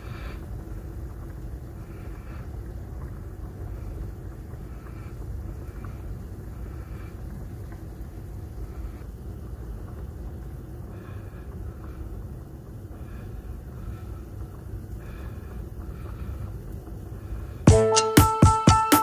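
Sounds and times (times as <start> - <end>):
low background rumble: 0.0 - 17.8
loud music with plucked notes: 17.7 - 19.0.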